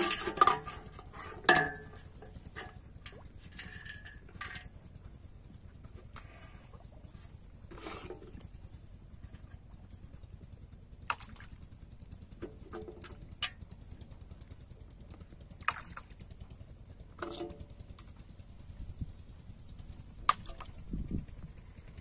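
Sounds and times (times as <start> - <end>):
low steady rumble: 0.0 - 22.0.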